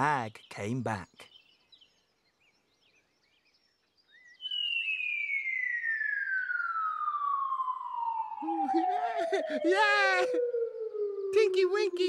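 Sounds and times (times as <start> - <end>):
faint birdsong chirping: 0.0 - 12.0
cartoon falling whistle: 4.5 - 10.4.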